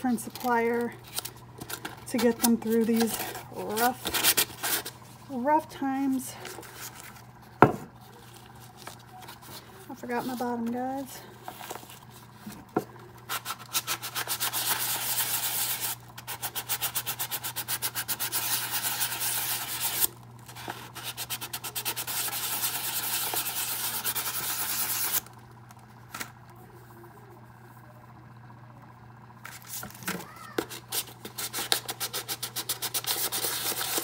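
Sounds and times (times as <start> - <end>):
sandpaper scrubbing ceramic mug: 13.3 - 25.2, 30.6 - 34.0.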